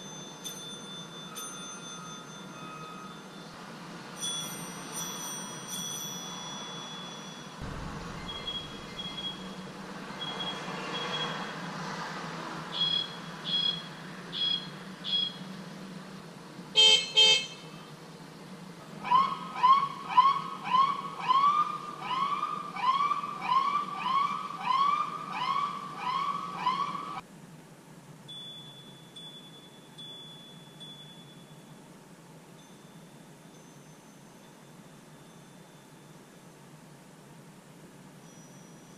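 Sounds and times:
muffled bicycle bell ringing: 0.0s - 3.6s, 4.2s - 7.7s, 28.3s - 31.8s
bicycle horn beeps and blasts: 16.8s - 17.7s
emergency siren whooping: 19.0s - 27.2s.

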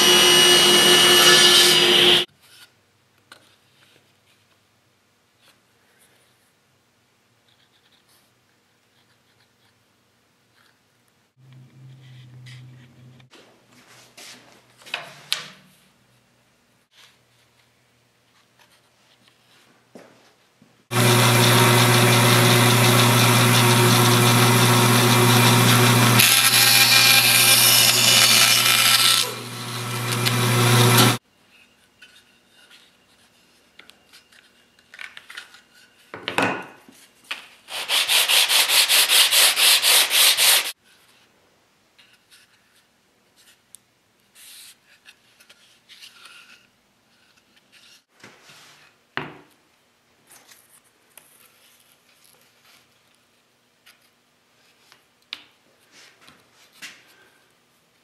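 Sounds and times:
power tool motor running: 0.0s - 2.3s, 20.9s - 31.2s.

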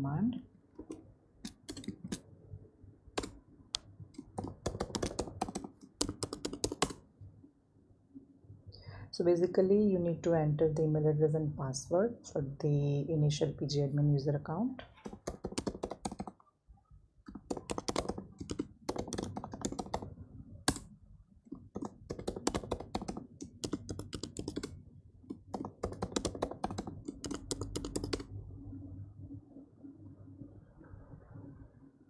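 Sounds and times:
computer keyboard typing: 0.8s - 2.2s, 3.2s - 3.4s, 4.2s - 7.0s, 14.9s - 16.4s, 17.3s - 20.9s, 21.5s - 28.3s.

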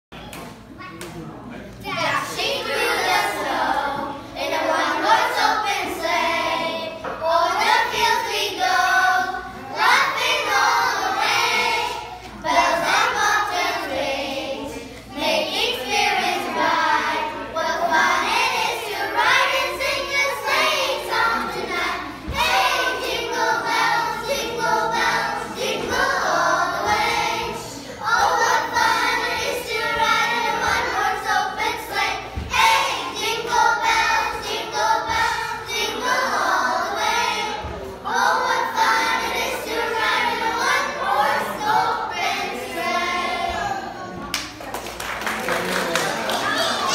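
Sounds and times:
children singing a carol: 1.9s - 44.2s.

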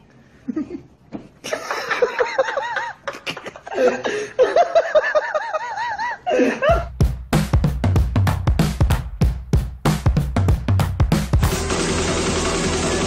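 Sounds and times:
person laughing: 0.4s - 6.9s
music with heavy drum beat: 6.7s - 13.0s.

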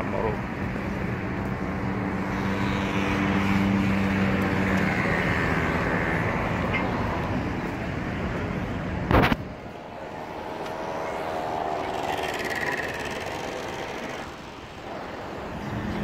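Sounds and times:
cars driving past: 0.0s - 16.0s.

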